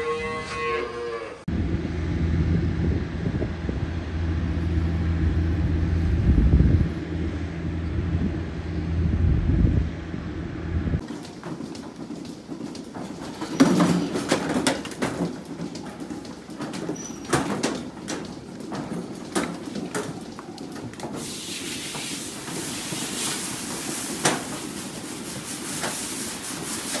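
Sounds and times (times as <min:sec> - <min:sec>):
low machinery hum: 0:01.5 - 0:11.0
water spraying from a hose: 0:21.2 - 0:27.0.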